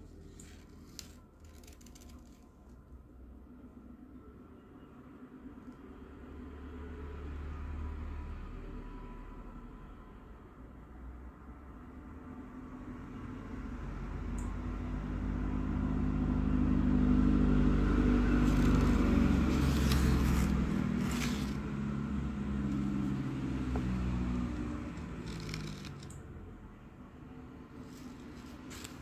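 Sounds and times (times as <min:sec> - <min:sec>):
vehicle engine passing by: 0:06.2 - 0:09.4, 0:12.7 - 0:29.0.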